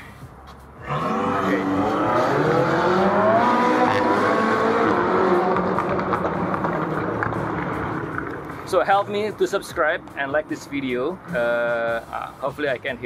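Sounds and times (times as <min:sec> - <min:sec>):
vehicle engine accelerating: 0:00.8 - 0:08.7.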